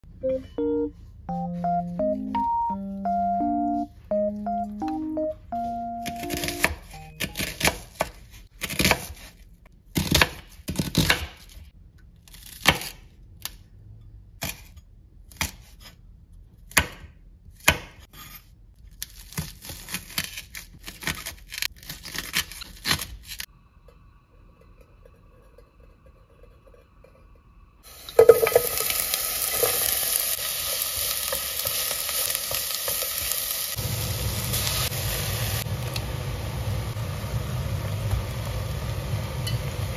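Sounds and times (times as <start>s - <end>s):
onion sizzling in a pot: 27.8s - 39.9s.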